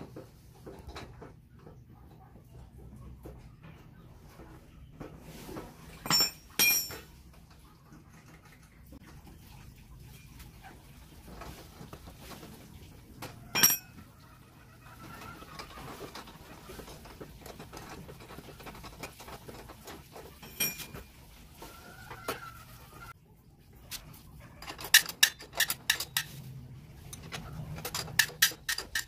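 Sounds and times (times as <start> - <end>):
handling and shuffling noise: 2.8 - 6.4, 9.0 - 14.0, 14.9 - 29.0
ringing metal tool clink: 6.1 - 7.1, 13.5 - 14.0, 20.4 - 21.0.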